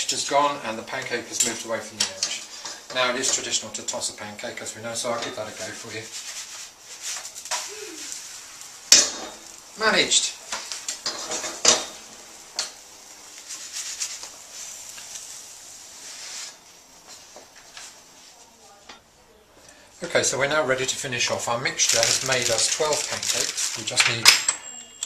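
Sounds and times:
pancake sizzling: 0.0 - 18.4, 20.2 - 24.2
frying pan knocking and clattering: 8.9 - 9.5, 10.5 - 12.8.

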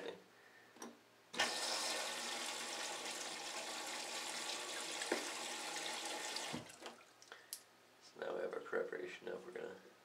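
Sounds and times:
water running into toilet bowl: 1.4 - 7.3.

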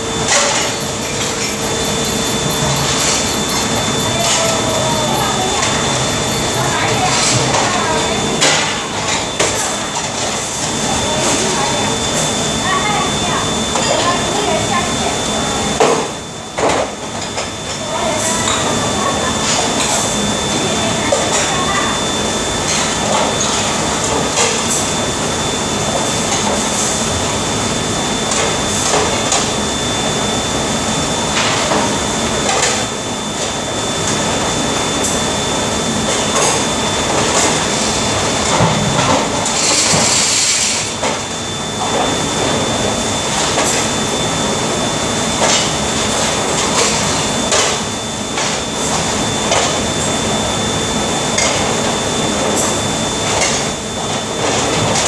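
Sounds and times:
faint high whine: 0.0 - 8.3.

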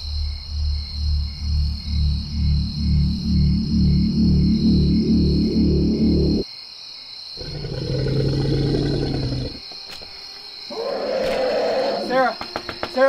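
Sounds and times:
crickets chirping: 0.0 - 13.0
pulsing electronic music: 1.3 - 6.4
low rough roar: 7.4 - 9.6.

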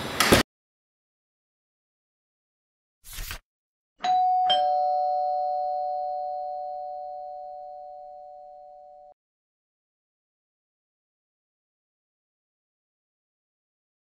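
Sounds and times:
two-tone doorbell chime: 4.0 - 9.2.

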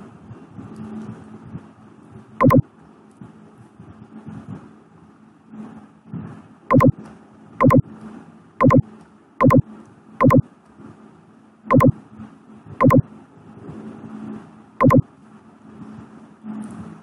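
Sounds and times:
computer mouse clicking: 6.7 - 6.9, 7.6 - 7.8, 8.6 - 8.8, 9.4 - 9.6, 10.2 - 10.4, 11.7 - 11.9, 12.8 - 13.0, 14.8 - 15.0.

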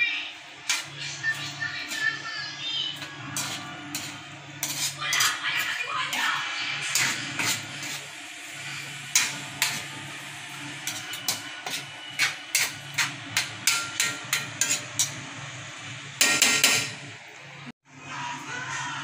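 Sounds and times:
metal spoon scraping a pan: 0.6 - 15.5.

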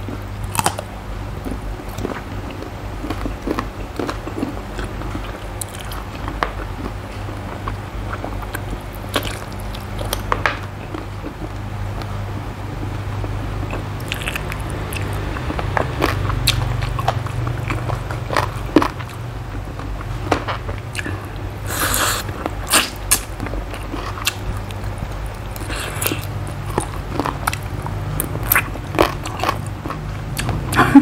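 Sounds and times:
person chewing with crunches: 0.0 - 31.0
wet mouth sounds: 13.7 - 17.9, 20.9 - 23.3.

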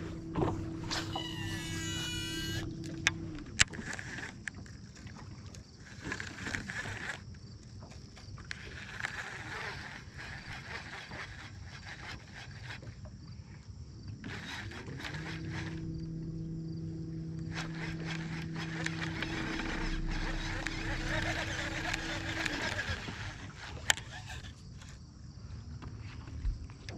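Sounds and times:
boat motor humming: 0.0 - 4.4, 14.2 - 24.5
outdoor background: 0.0 - 26.9
sharp clicks: 14.2 - 24.5.

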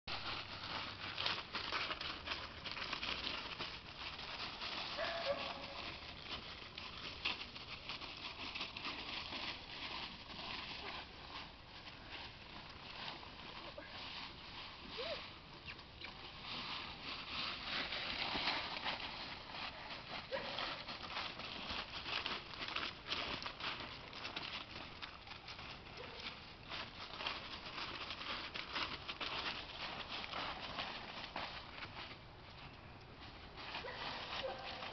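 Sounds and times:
footsteps crunching dry leaves: 0.1 - 34.9.

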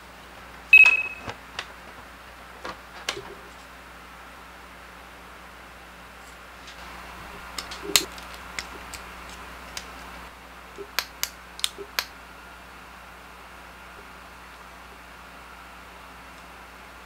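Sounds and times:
plastic figure parts clicking: 7.5 - 10.0, 10.8 - 12.1.

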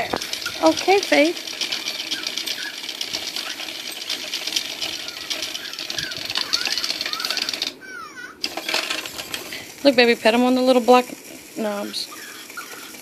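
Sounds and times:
toy motor buzzing and clicking: 0.0 - 13.0
high chirping squeaks: 0.4 - 13.0.

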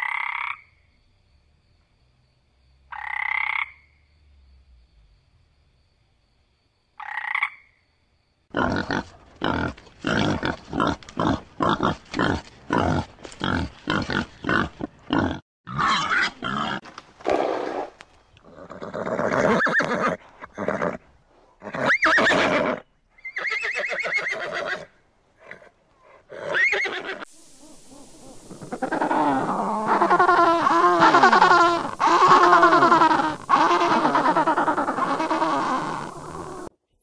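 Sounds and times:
horse neighing: 18.4 - 21.0, 21.6 - 24.9, 26.3 - 27.2, 28.7 - 36.7.

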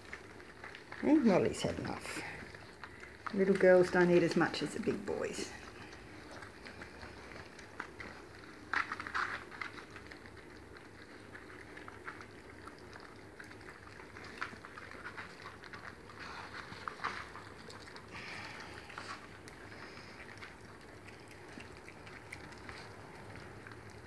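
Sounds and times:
puppies lapping and chewing: 0.0 - 24.0.

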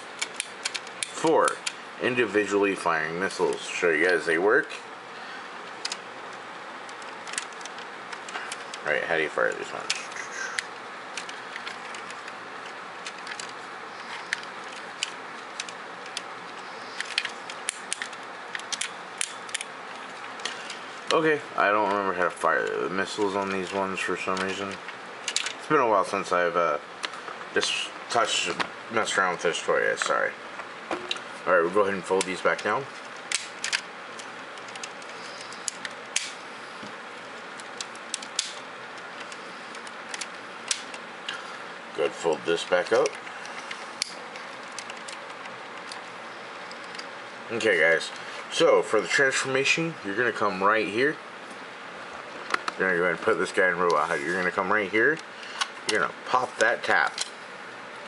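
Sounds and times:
steady background hiss: 0.0 - 58.0
plastic toy parts clicking: 0.2 - 1.8, 6.9 - 8.8, 14.3 - 16.2, 17.0 - 19.7, 25.3 - 25.6, 42.3 - 46.0.

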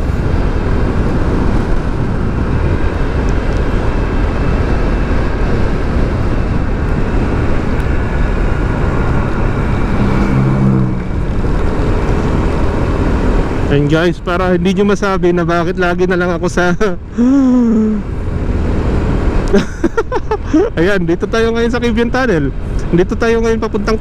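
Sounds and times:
motorcycle engine rumble: 0.0 - 15.3
wind rushing over microphone: 0.0 - 24.0.

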